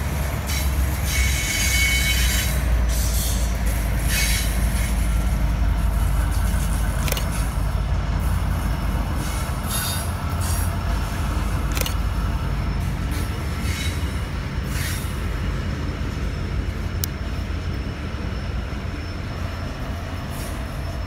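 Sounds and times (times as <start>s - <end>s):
freight train wagons rumbling on rails: 0.0s - 21.0s
high wheel squeal: 0.4s - 5.4s, 9.1s - 11.0s, 11.8s - 16.4s.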